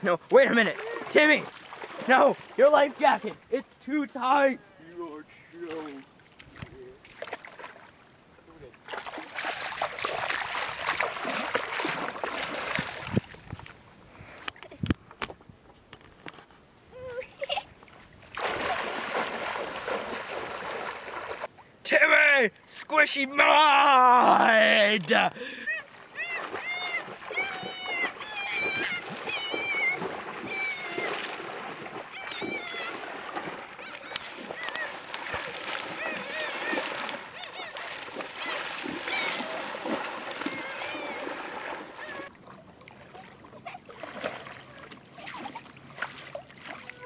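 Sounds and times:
water splashing in shallows: 0.0 - 3.5, 5.6 - 8.0, 8.8 - 13.7, 17.9 - 21.6, 24.6 - 47.0
short high-pitched wavering cries: 25.6 - 31.2, 32.1 - 33.1, 33.8 - 39.7, 40.4 - 41.3, 41.9 - 42.3.

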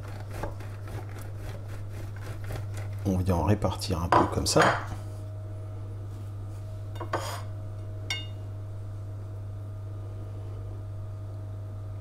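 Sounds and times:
steady low hum: 0.0 - 12.0
rustling scrape on baking tray: 6.1 - 7.5.

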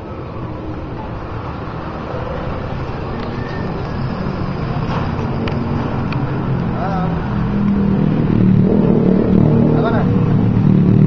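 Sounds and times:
street traffic noise: 0.0 - 11.0.

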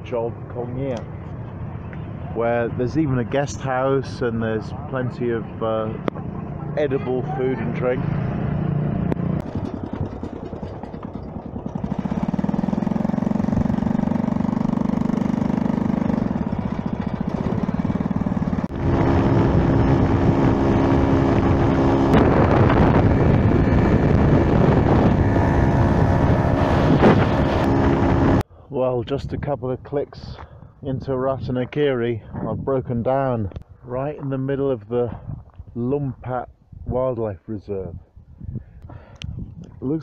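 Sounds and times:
wind and road noise: 0.0 - 40.0
small motorbike engine running: 9.2 - 28.4.

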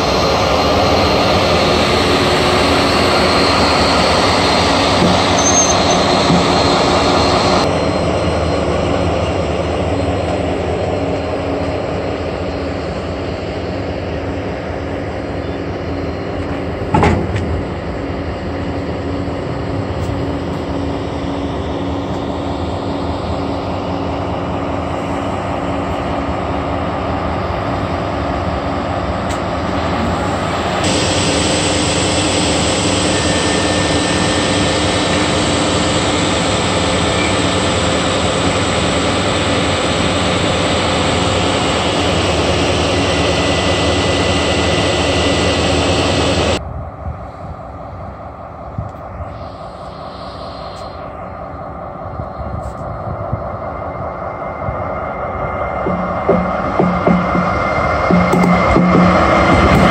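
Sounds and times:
diesel locomotive engine hum: 0.0 - 59.9
locomotive hiss: 29.4 - 53.1
sharp knock: 55.9 - 59.9.

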